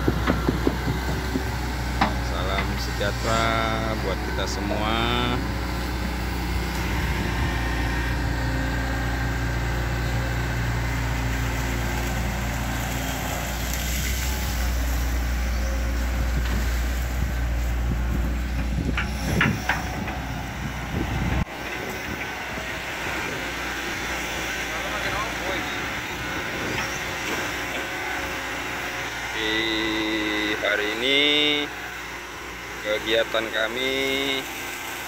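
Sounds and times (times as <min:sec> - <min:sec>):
sharp metallic knocks: 0:00.0 - 0:02.8
excavator diesel engine running: 0:00.0 - 0:35.0.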